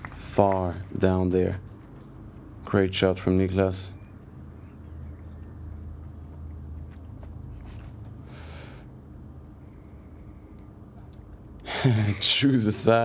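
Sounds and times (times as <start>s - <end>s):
low outdoor hum: 0.0s - 13.0s
faint scuffs: 6.9s - 8.2s.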